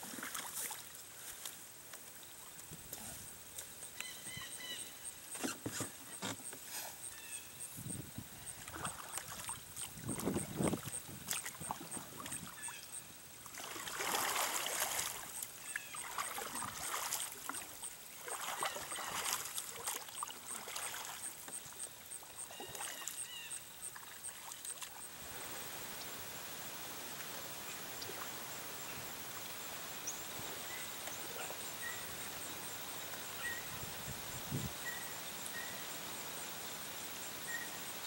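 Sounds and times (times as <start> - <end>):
kayak paddle splashing: 0.0 - 0.9, 8.4 - 25.4.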